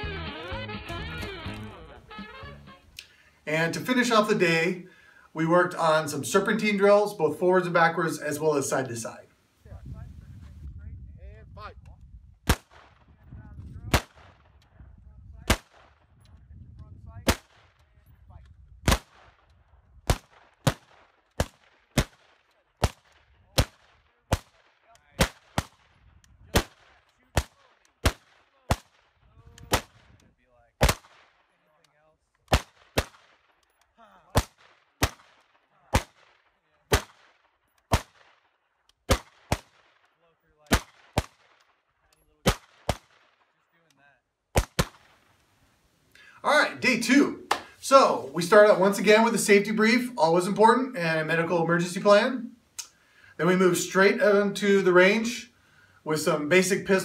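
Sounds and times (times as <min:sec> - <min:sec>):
rifle shots: 0:12.4 - 0:13.2, 0:13.9 - 0:14.6, 0:18.8 - 0:30.2, 0:30.8 - 0:31.6, 0:32.5 - 0:43.5, 0:44.5 - 0:45.3.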